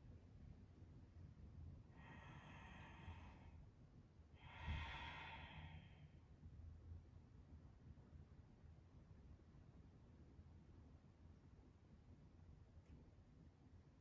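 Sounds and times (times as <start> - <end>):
person breathing in and out: 1.9 - 3.6, 4.4 - 6.2.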